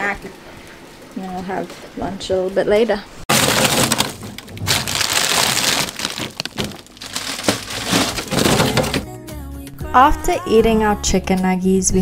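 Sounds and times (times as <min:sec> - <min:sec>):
frozen food knocking: 0:03.3 - 0:09.0
plastic bags crinkling: 0:03.3 - 0:09.0.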